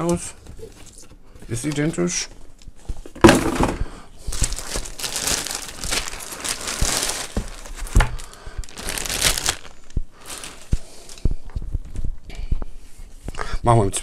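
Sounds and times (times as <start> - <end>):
plastic bag crinkling: 3.3 - 11.2.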